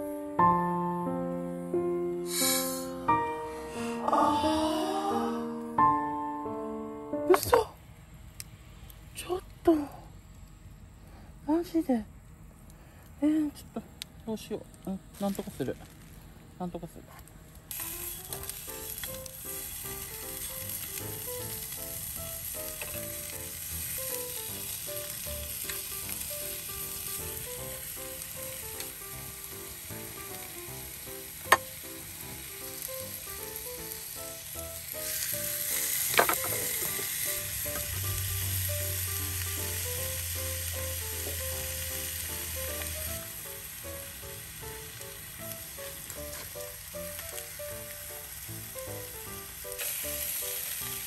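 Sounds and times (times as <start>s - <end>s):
meat sizzling in a skillet: 17.7s - 51.0s.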